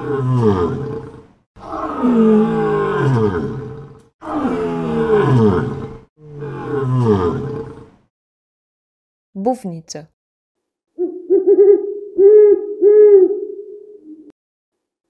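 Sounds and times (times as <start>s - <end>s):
lion roaring: 0.0s - 8.0s.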